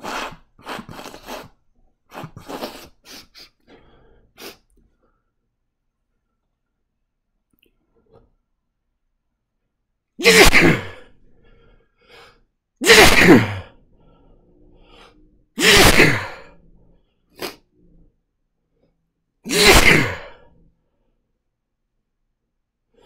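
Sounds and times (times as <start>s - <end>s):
man sneezing: 10.2s - 11.1s, 12.8s - 13.8s, 15.6s - 16.5s, 19.4s - 20.5s.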